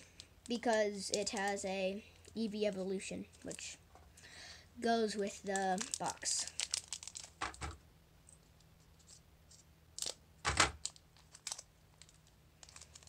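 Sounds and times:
foil pack crinkling: 0:05.3 - 0:07.6, 0:10.0 - 0:13.0.

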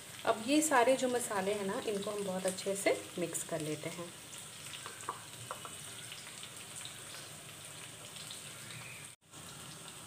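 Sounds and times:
okra sizzling in oil: 0:00.0 - 0:10.0.

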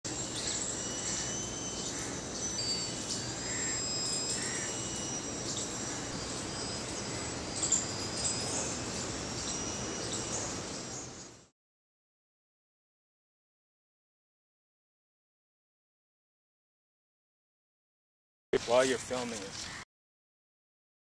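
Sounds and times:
distant electric model plane motor whine: 0:00.1 - 0:11.5
outdoor background hiss: 0:00.1 - 0:11.5, 0:18.6 - 0:19.8.

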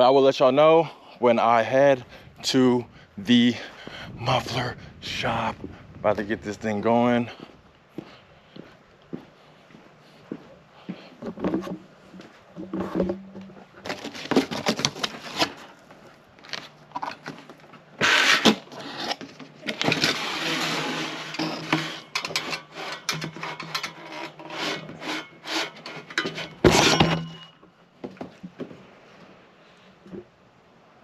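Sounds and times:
handling knocks and rustles: 0:10.3 - 0:29.4
metal pipe scraping cardboard: 0:12.6 - 0:15.7, 0:18.0 - 0:27.6.

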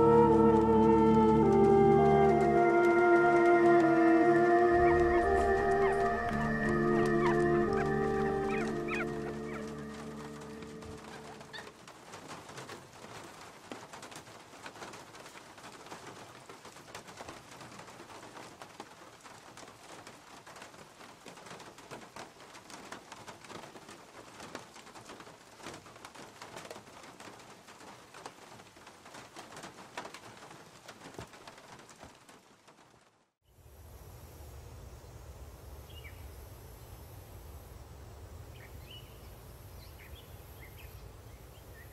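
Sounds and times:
steady pattering with ticks: 0:01.2 - 0:32.8.

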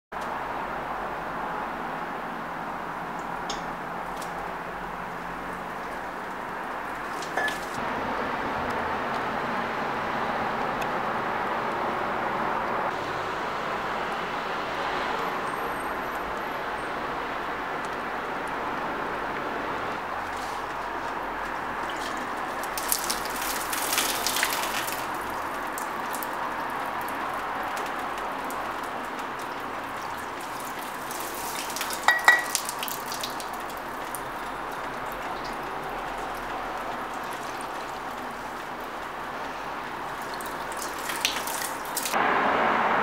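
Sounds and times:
water pouring onto plants: 0:04.1 - 0:07.8, 0:20.3 - 0:42.2.

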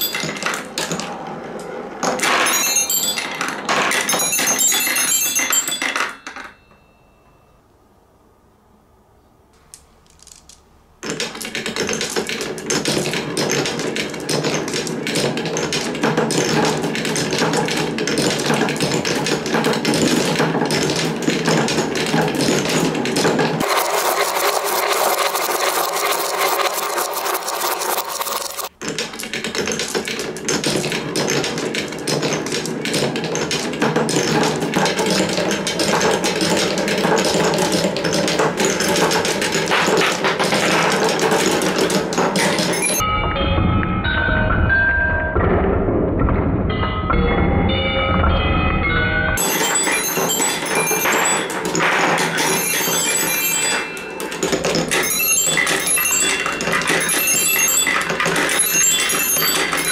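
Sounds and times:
marbles rattling through marble run: 0:00.0 - 0:01.2, 0:02.0 - 0:06.8, 0:10.1 - 0:43.0, 0:49.4 - 0:59.9.

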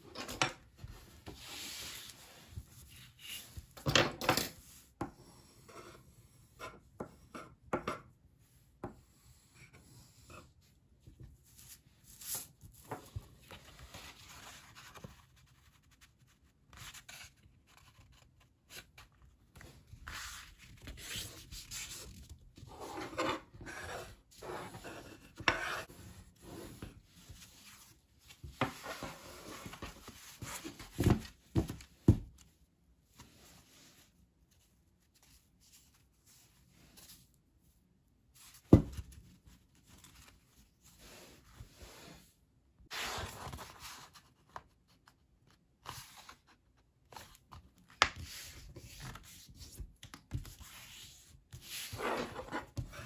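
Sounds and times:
paper rustling and scraping: 0:11.5 - 0:31.8, 0:42.9 - 0:44.6, 0:48.2 - 0:53.0.

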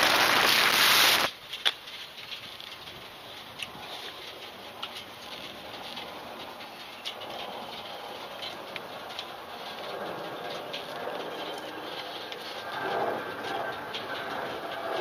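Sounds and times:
wind rushing over camera: 0:07.2 - 0:15.0.

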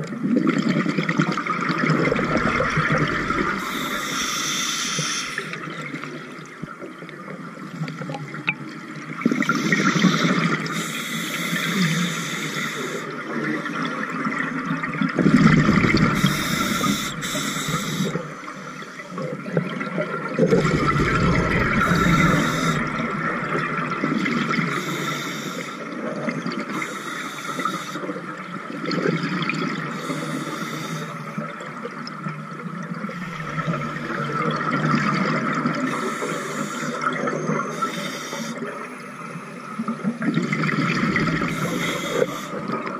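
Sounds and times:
exhaled bubbles rumbling: 0:00.0 - 0:04.4, 0:13.4 - 0:18.3, 0:19.4 - 0:24.8, 0:33.2 - 0:36.0, 0:39.9 - 0:41.8
regulator hissing inhalation: 0:03.1 - 0:05.6, 0:09.5 - 0:13.0, 0:16.2 - 0:18.2, 0:21.6 - 0:23.0, 0:24.7 - 0:25.8, 0:41.5 - 0:42.6.

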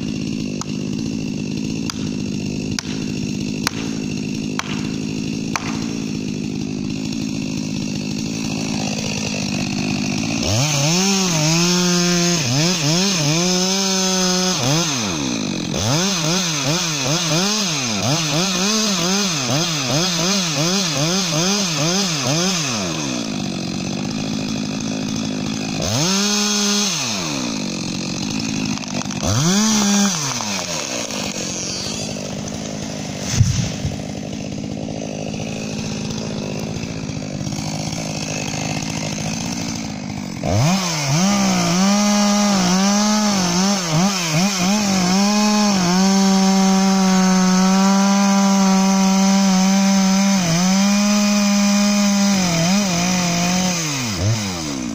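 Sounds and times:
chainsaw cutting wood: 0:00.0 - 0:54.9
chainsaw idling: 0:00.0 - 0:54.9
tree hitting ground thud: 0:01.9 - 0:06.2, 0:33.2 - 0:34.3.

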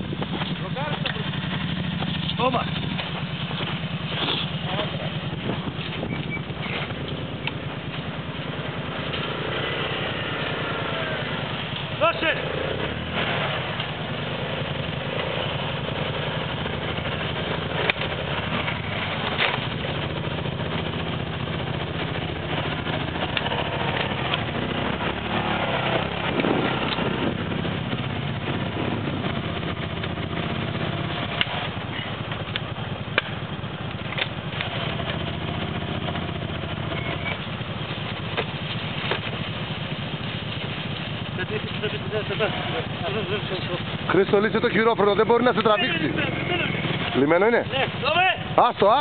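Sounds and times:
quad bike engine running: 0:00.0 - 0:49.0
sharp clicks and knocks: 0:00.2 - 0:04.6, 0:05.5 - 0:08.1, 0:17.7 - 0:20.9, 0:22.1 - 0:24.7, 0:25.8 - 0:27.2, 0:31.1 - 0:35.3, 0:36.9 - 0:42.0.

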